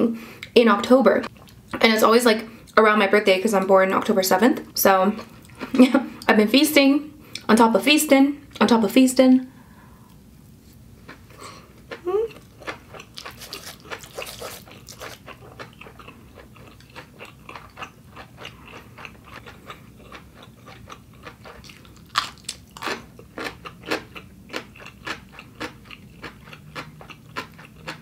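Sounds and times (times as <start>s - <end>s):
person chewing food: 1.3s - 1.8s, 5.2s - 6.0s, 11.0s - 28.0s.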